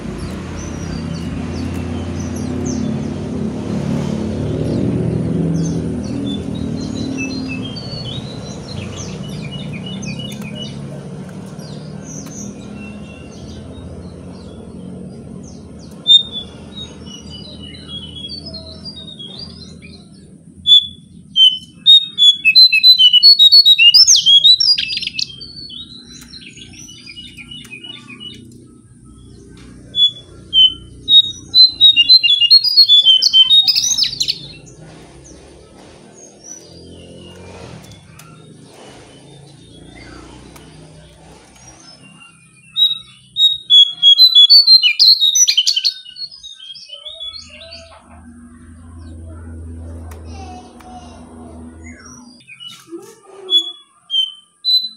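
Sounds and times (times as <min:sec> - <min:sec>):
songbird singing: 0:00.0 - 0:54.9
bird chirps: 0:04.5 - 0:54.9
low background rumble: 0:47.4 - 0:52.4.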